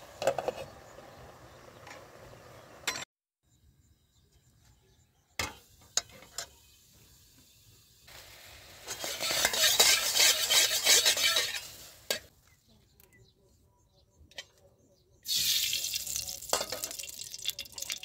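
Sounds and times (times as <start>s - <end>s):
spatula scraping wok: 0.1s - 1.1s, 8.6s - 12.3s
food sizzling: 6.4s - 12.3s, 15.3s - 18.0s.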